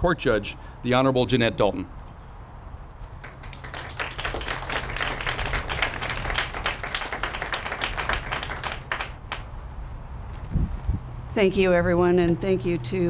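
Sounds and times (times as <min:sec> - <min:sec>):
audience applauding: 0:03.2 - 0:09.5.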